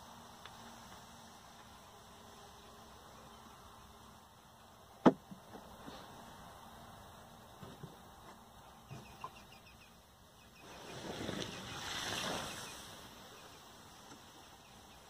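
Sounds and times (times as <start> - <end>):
water hissing on hot ashes: 10.7 - 13.2.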